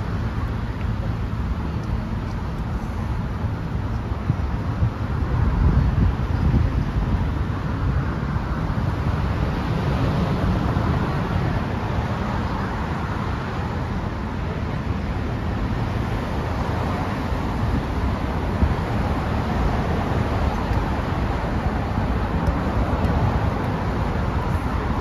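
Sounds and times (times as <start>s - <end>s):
road traffic noise: 0.0s - 25.0s.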